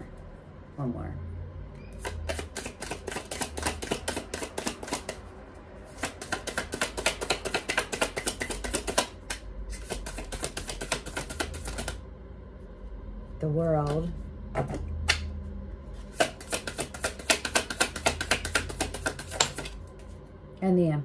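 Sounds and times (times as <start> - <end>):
cards being shuffled: 2.0 - 5.2, 5.9 - 12.0, 16.0 - 20.1.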